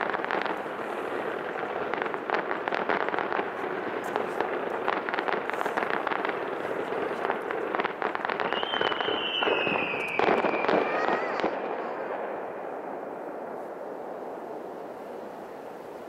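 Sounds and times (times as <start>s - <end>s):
fireworks crackling and banging: 0.0s - 16.0s
firework whistle dropping in pitch: 8.4s - 12.1s.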